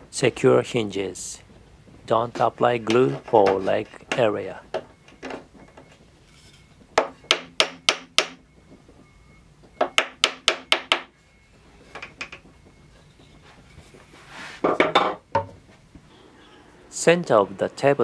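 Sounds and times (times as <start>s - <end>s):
wooden mallet knocking dowel: 7.0s - 8.4s, 9.8s - 11.1s.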